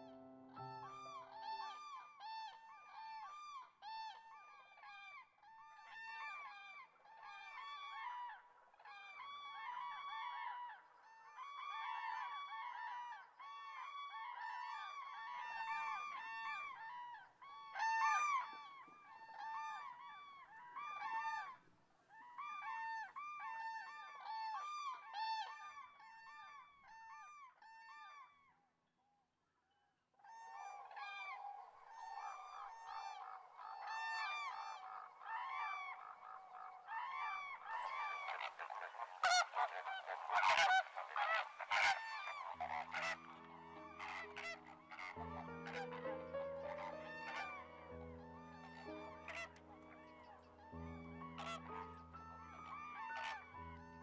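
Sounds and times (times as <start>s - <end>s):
cranes calling: 30.6s - 50.4s, 51.0s - 54.0s.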